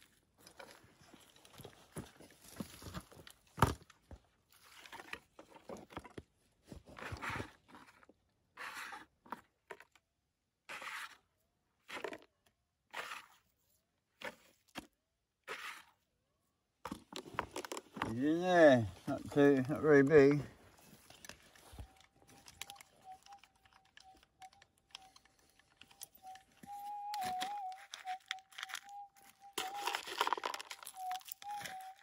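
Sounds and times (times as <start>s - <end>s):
scraping stony soil: 6.9s - 9.9s, 10.6s - 12.3s, 12.9s - 16.1s.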